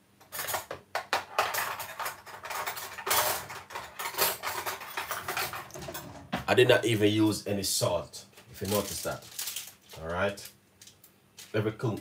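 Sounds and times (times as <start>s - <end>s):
utensils clattering on dishware: 0.2s - 6.3s.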